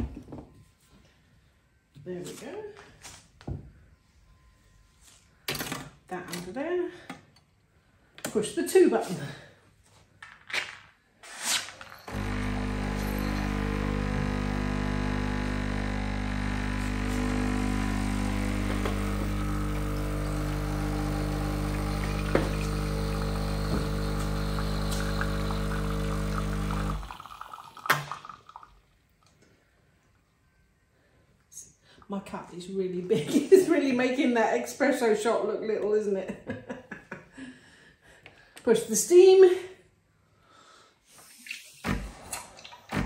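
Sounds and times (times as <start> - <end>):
espresso machine pump humming: 12.1 - 28.3.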